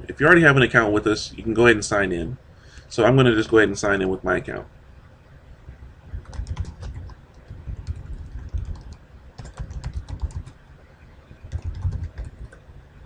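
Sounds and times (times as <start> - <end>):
typing on computer keyboard: 6.2 - 10.6, 11.5 - 12.6.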